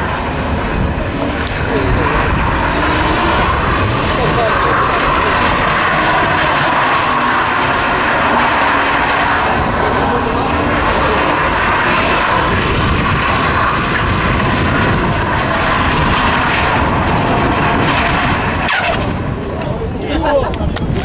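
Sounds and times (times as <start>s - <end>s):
car engine at high revs: 0.0s - 21.0s
tyres squealing: 18.6s - 19.1s.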